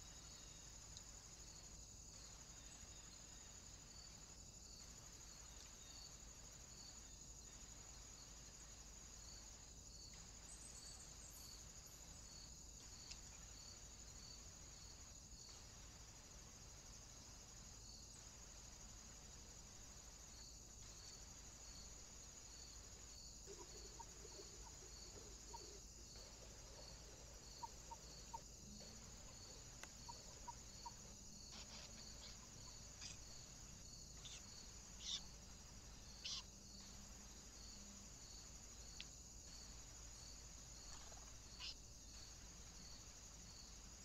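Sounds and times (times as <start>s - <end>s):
crickets chirring: 0.0s - 44.0s
low hiss and hum: 0.0s - 44.0s
faint tick: 13.0s - 13.2s, 29.8s - 30.0s.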